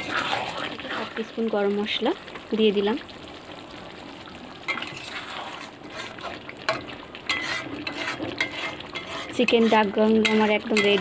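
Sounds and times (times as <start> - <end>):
gravy sizzling: 0.0 - 11.0
metal spoon scraping pan: 4.7 - 11.0.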